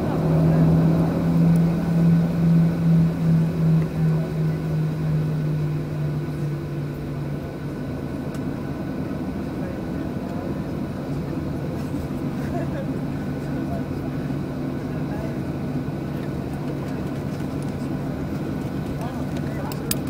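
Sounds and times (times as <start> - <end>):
low throbbing hum: 0.0 - 12.3
airplane cabin engine rumble: 0.0 - 20.0.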